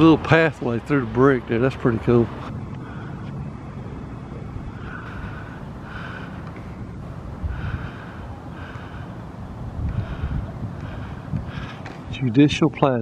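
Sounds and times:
wind rumble on microphone: 2.2 - 13.0
soft breath-like hisses: 4.7 - 12.0.

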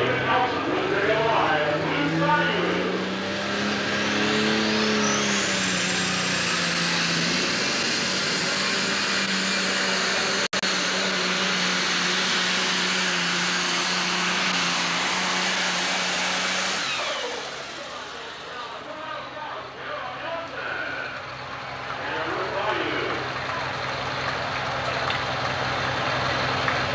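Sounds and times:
diesel engine running flat out: 0.0 - 26.9
turbo whine: 19.7 - 23.4.

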